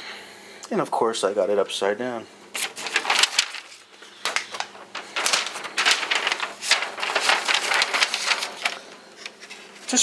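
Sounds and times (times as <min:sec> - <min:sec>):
paper sheet rustling: 0:02.5 - 0:10.0.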